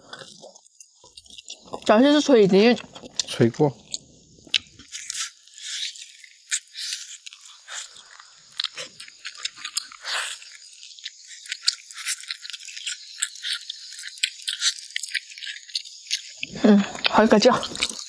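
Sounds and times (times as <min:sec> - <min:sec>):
teeth crunching cartilage: 0:00.0 - 0:18.0.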